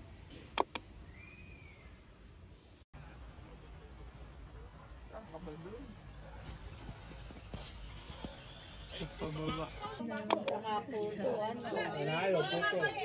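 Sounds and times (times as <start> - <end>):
insects chorus: 3.0 - 10.0.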